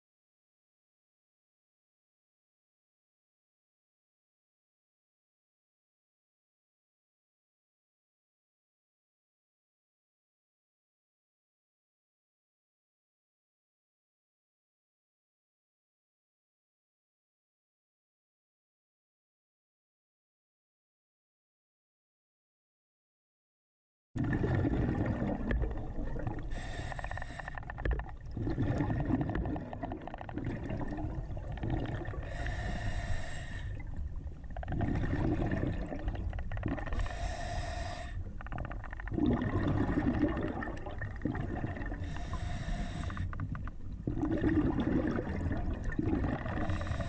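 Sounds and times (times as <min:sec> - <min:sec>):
exhaled air bubbling: 0:24.2 - 0:47.0
hissing regulator inhale: 0:26.4 - 0:27.9, 0:32.2 - 0:34.1, 0:36.9 - 0:38.5, 0:41.9 - 0:43.5, 0:46.5 - 0:47.0.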